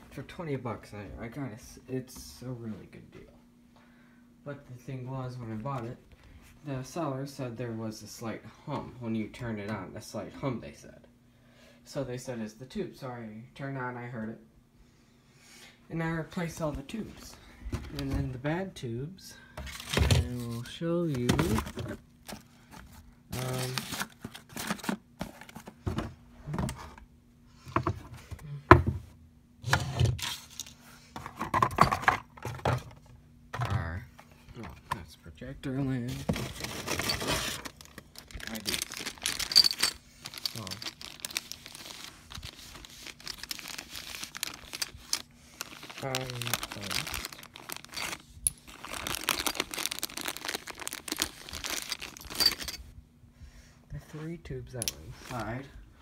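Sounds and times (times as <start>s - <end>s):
faint electrical hum: 0.0s - 56.0s
rummaging in cardboard box: 19.6s - 26.0s, 36.1s - 52.8s
plastic bag crinkling: 36.3s - 52.9s.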